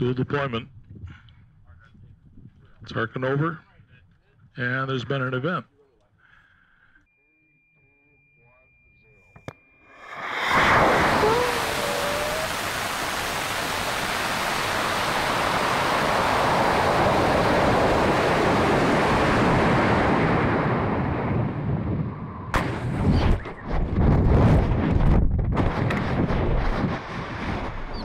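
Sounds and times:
wavering whistle: 0:07.1 - 0:12.8
rocket motor exhaust rush: 0:09.9 - 0:28.0
wind buffeting: 0:10.0 - 0:28.0.

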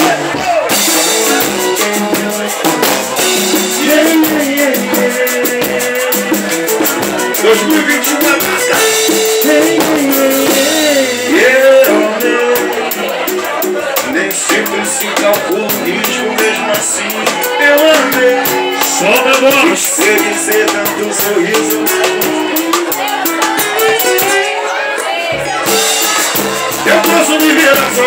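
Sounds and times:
sliding melody line: 0:00.0 - 0:28.0.

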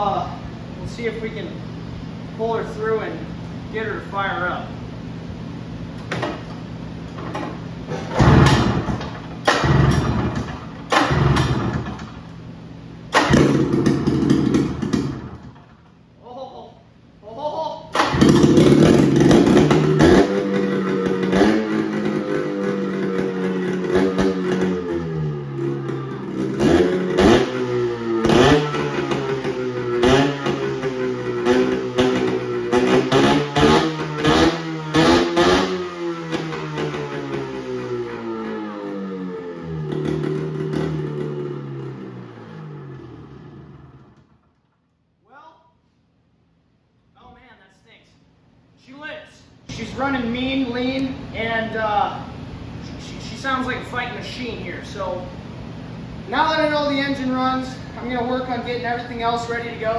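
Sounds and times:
two-stroke engine revving: 0:08.1 - 0:12.2, 0:13.1 - 0:15.6, 0:17.9 - 0:44.2.

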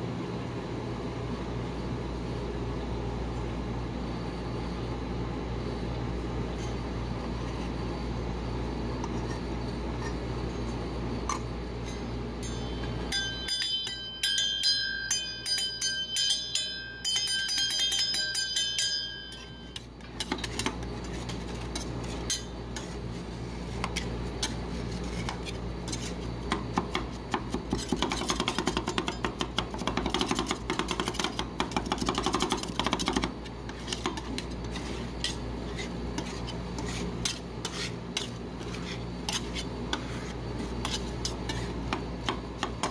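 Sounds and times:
steady low hum: 0:00.0 - 0:42.9
fast metallic ringing taps: 0:12.4 - 0:19.8
metal spatulas chopping and scraping: 0:17.1 - 0:23.0, 0:23.7 - 0:42.9.

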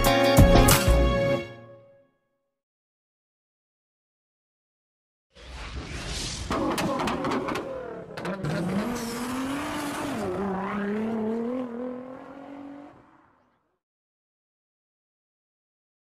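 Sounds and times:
car engine revving: 0:06.5 - 0:13.7.

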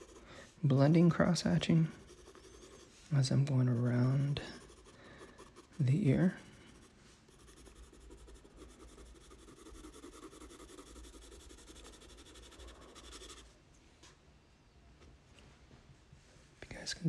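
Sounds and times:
pencil scratching on paper: 0:00.0 - 0:13.5.

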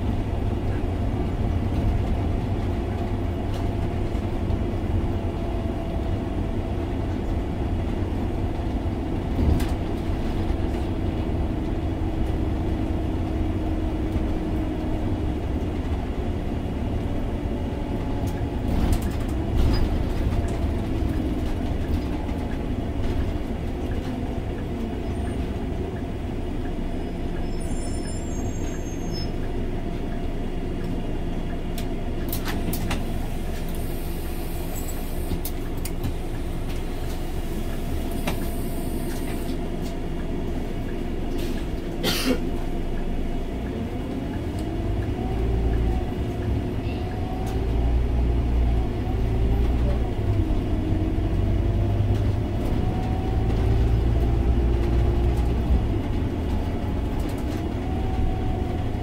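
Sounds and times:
bus engine rumble: 0:00.0 - 0:59.0.

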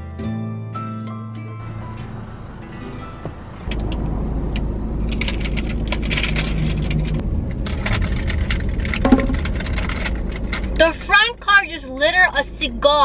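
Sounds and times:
steady low rumble: 0:01.6 - 0:11.5.

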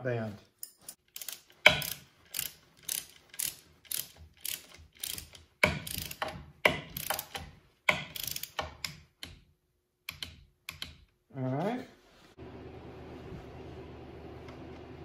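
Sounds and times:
ratchet wrench clicking: 0:01.1 - 0:09.4.

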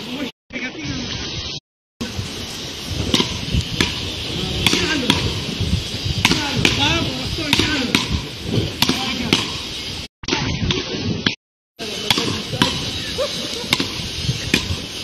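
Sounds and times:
paddle rackets hitting ball: 0:03.1 - 0:04.0, 0:04.6 - 0:05.4, 0:06.2 - 0:09.6, 0:12.0 - 0:12.9, 0:13.7 - 0:14.8.

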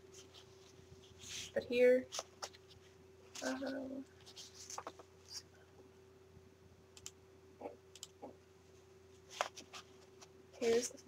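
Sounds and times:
faint steady hum: 0:00.0 - 0:11.0
paper page clicks and rustles: 0:04.2 - 0:05.0.

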